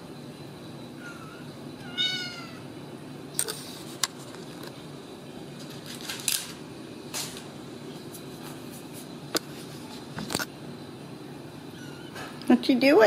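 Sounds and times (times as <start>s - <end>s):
kitten meowing: 1.0s - 2.6s, 11.7s - 12.2s
kittens scuffling and clicking: 5.6s - 10.5s.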